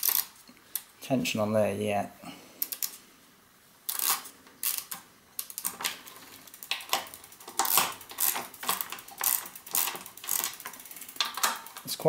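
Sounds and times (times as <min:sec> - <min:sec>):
ratcheting torque wrench clicking: 0:00.0 - 0:00.9, 0:03.9 - 0:05.9, 0:06.5 - 0:11.8.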